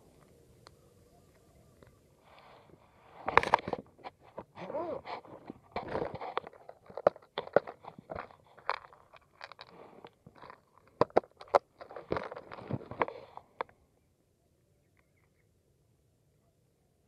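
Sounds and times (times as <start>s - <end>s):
rustling: 1.2s - 13.8s.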